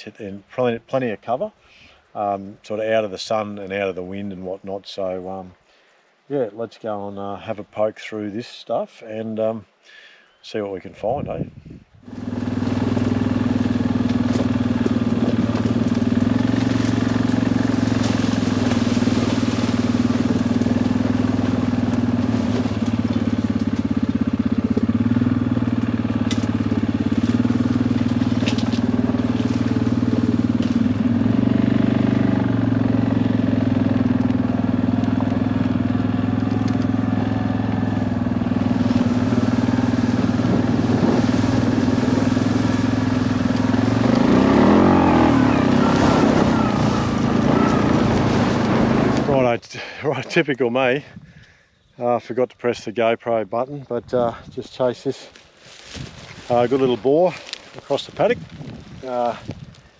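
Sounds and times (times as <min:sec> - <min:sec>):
off-road vehicle engine running: 0:12.0 - 0:49.6, 0:55.8 - 0:59.9.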